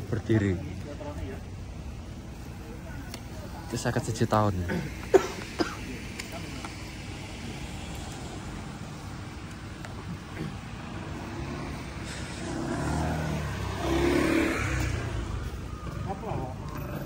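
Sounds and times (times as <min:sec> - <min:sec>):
street traffic: 0:00.0 - 0:17.0
vehicle passing close by: 0:10.6 - 0:16.4.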